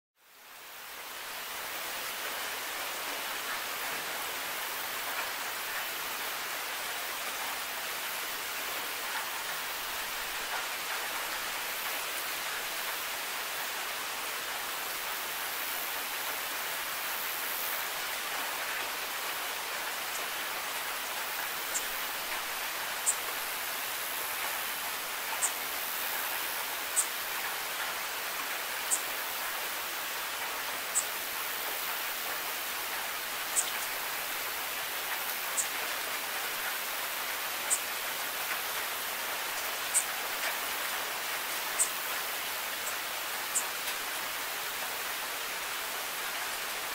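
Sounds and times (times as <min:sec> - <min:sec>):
steady rain: 0:00.2 - 0:46.9
sharp high dripping ticks: 0:25.2 - 0:29.1, 0:32.9 - 0:34.0.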